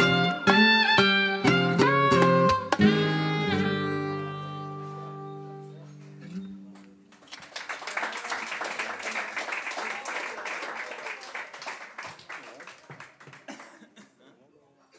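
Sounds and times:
soprano saxophone: 0:00.0 - 0:05.8
classical guitar: 0:00.0 - 0:07.1
audience applause: 0:07.1 - 0:13.8.

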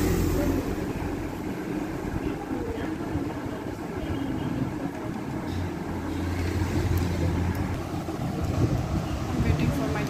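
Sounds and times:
deep steady hum: 0:00.0 - 0:02.4
low mechanical rumble: 0:00.0 - 0:03.7.

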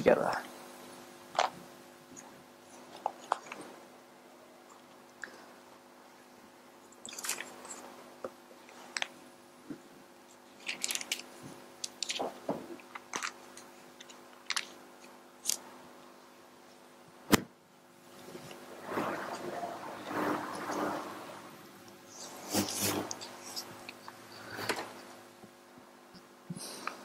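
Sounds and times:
faint steady hum: 0:00.0 - 0:27.0.

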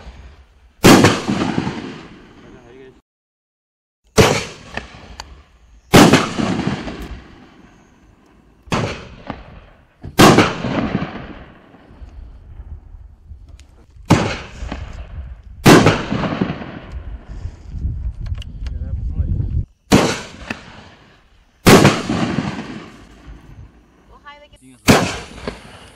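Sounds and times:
firework launch bangs: 0:00.8 - 0:02.4, 0:04.1 - 0:05.2, 0:05.9 - 0:07.6, 0:08.7 - 0:11.6, 0:14.0 - 0:17.0, 0:19.9 - 0:23.4, 0:24.8 - 0:25.9.

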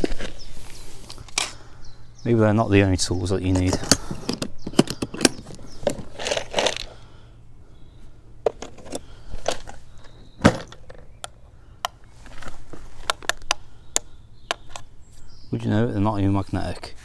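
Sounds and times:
small metal tools clattering: 0:03.5 - 0:06.9.

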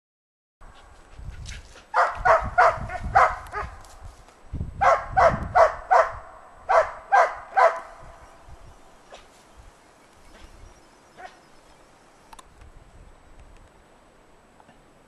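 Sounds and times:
dog barking: 0:01.9 - 0:03.8, 0:04.8 - 0:08.0, 0:11.2 - 0:11.4.

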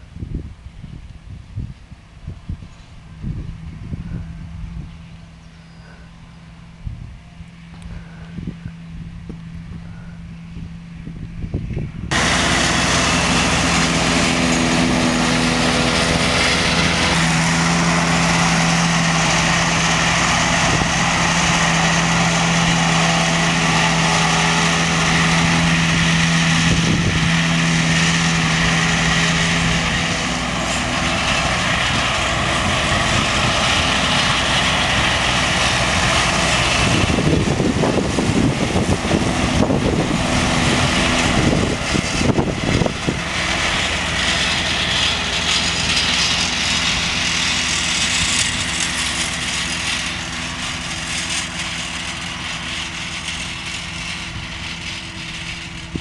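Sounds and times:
tractor engine drone: 0:00.0 - 0:56.0
spinning mower discs whirring: 0:12.0 - 0:56.0.

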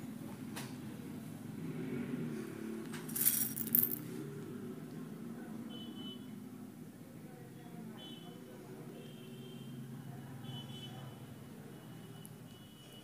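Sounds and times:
plastic beads clattering: 0:03.1 - 0:04.0.

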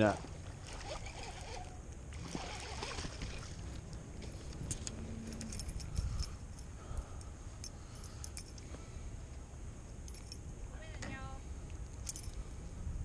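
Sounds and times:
wind rumble on microphone: 0:00.6 - 0:07.6, 0:10.4 - 0:13.0
fishing tackle clicking and rattling: 0:04.2 - 0:08.7.

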